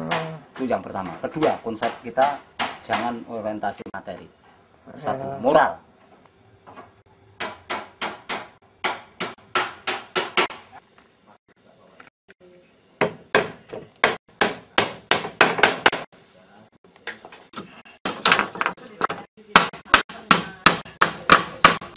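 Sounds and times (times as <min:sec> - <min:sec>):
hammering on wood: 0:01.4 - 0:03.2, 0:07.4 - 0:10.7, 0:13.0 - 0:16.1, 0:18.0 - 0:21.9.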